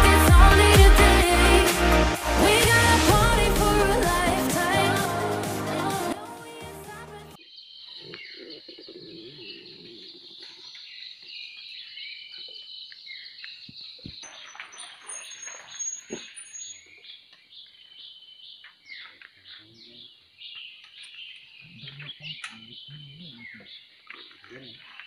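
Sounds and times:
birds chirping and twittering: 7.4 - 25.0.

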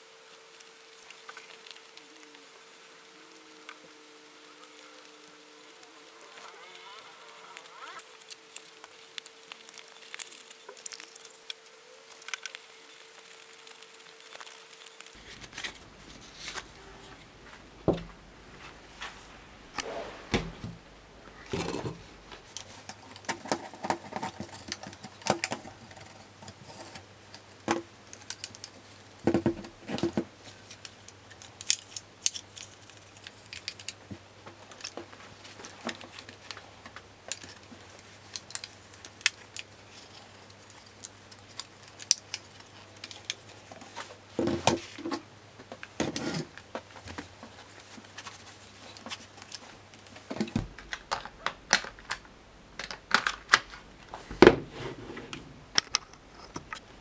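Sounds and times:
cloth rubbing: 18.5 - 20.7
plastic parts clicking and knocking: 49.0 - 54.6.

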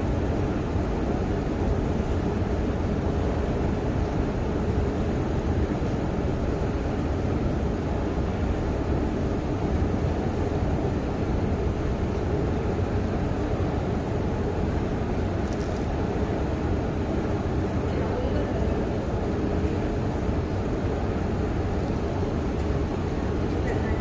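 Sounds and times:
escalators rumbling: 14.2 - 24.0.

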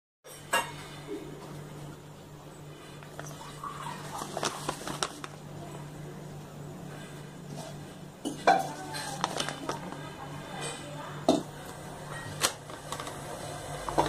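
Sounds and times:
steady low hum: 0.3 - 14.0
plastic pouch crinkling: 3.0 - 5.8, 8.7 - 10.2, 12.4 - 13.4.

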